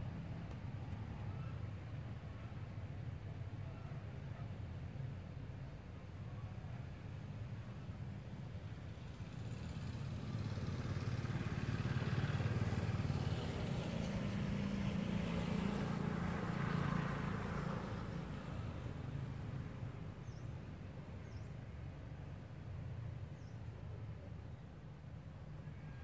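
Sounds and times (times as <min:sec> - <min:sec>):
vehicle engine hum passing: 0:08.7 - 0:24.8.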